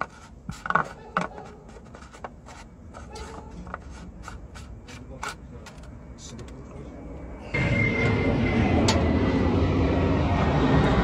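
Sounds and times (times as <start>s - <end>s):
cap scraping and ticking: 0.0s - 6.6s
steady low hum: 0.0s - 11.0s.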